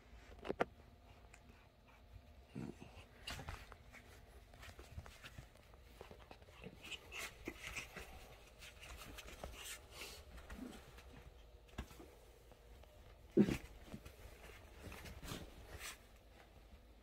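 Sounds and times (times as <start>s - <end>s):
breathy dog sounds: 1.0s - 3.8s
scuffling on bedding: 3.1s - 16.8s.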